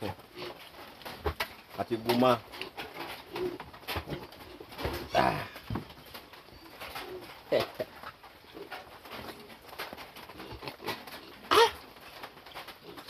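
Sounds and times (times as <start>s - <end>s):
dove cooing: 2.6s - 13.0s.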